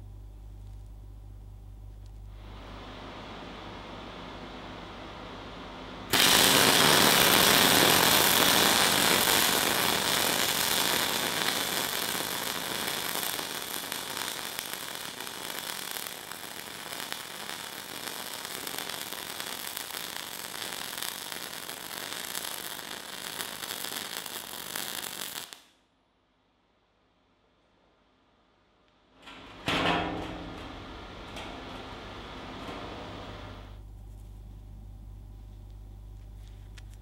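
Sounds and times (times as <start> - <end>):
welding arc crackling: 6.1 - 25.8, 30.2 - 33.8.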